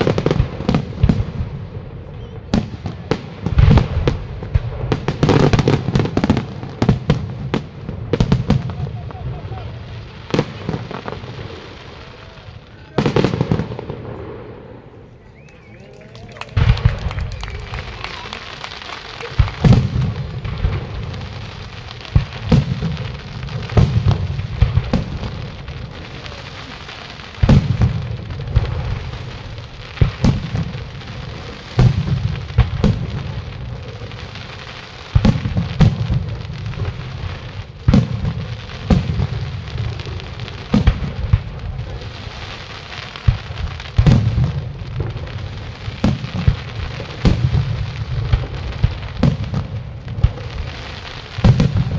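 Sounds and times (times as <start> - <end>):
fireworks bursting with bangs: 0.0 - 51.9
hissing crackle: 0.0 - 51.9
low rolling echo: 5.8 - 34.9.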